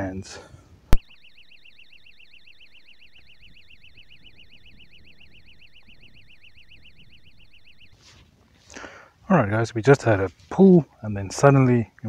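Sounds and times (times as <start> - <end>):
warbling electronic bite alarm: 0.9 - 9.0.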